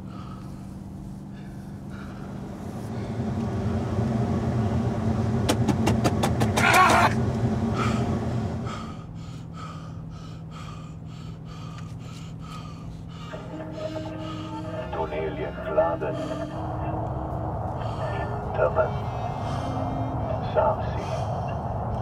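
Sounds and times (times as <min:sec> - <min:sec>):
rhythmic panting breaths: 0:00.0 - 0:03.4, 0:07.7 - 0:22.0
car engine and road drone: 0:00.0 - 0:22.0
man screaming: 0:06.6 - 0:07.1.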